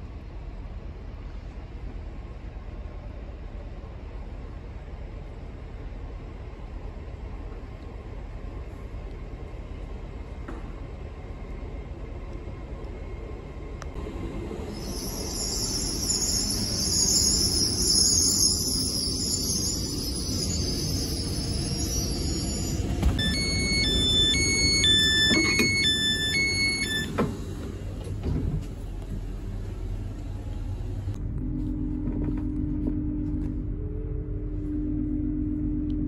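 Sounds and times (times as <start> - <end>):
train rumbling and whining: 0.0 - 36.0
interior hum with low tone: 18.0 - 36.0
door warning beeps: 21.8 - 27.2.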